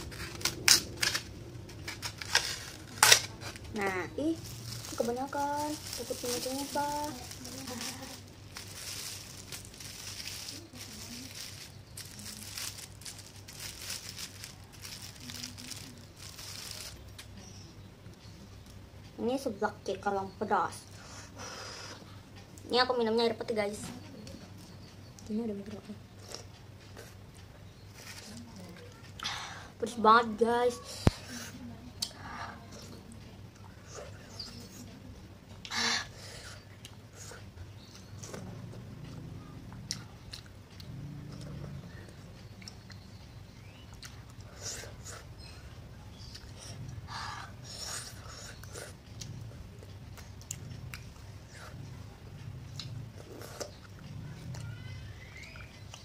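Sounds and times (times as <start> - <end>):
plastic cling wrap crinkling: 0.0 - 17.3, 28.0 - 28.9
person chewing: 47.7 - 51.8, 52.7 - 54.6.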